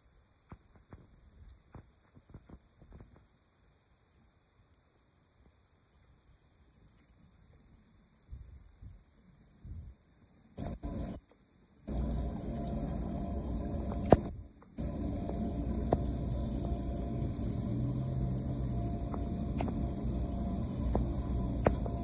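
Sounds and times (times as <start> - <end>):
water rushing into storm drain: 11.9 - 22.0.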